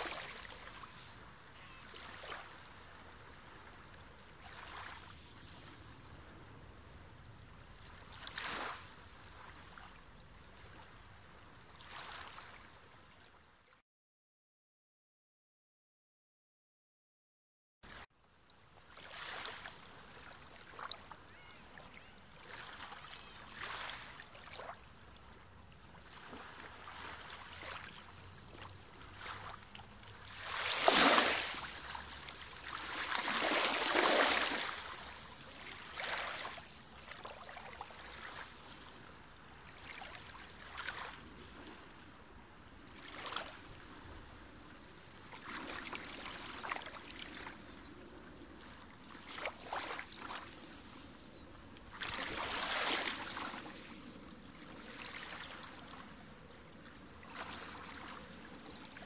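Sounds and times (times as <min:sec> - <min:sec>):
sea water splashing around rocks: 0:30.3 - 0:38.4.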